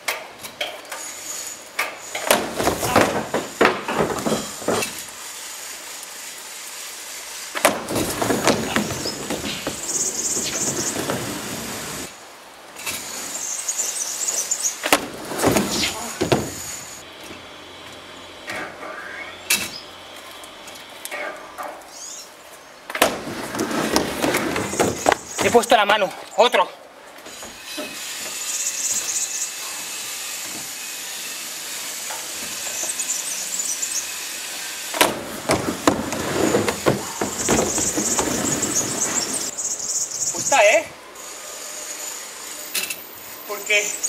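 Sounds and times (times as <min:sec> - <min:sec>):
skateboard wheels rolling on wood: 0:01.9 - 0:05.2, 0:07.6 - 0:12.2, 0:14.3 - 0:17.0, 0:22.9 - 0:26.0, 0:34.9 - 0:39.7
skateboard clacking on landing: 0:07.6 - 0:11.7, 0:35.0 - 0:39.5
short high squeaks: 0:08.6 - 0:12.1, 0:36.2 - 0:43.0.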